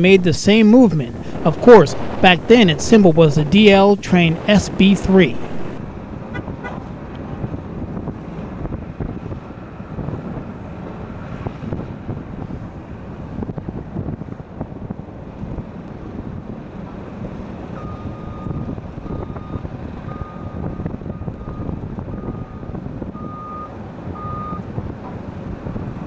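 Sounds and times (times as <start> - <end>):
wind on microphone: 0.5 - 23.4
low rumble: 1.0 - 6.4
vehicle reversing alarm beeping: 17.8 - 24.7.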